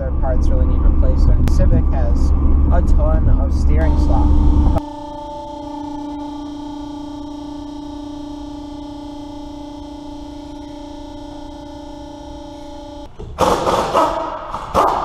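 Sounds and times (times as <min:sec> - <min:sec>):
steady droning tone: 0:00.0 - 0:13.1
air impact wrench: 0:13.2 - 0:15.0.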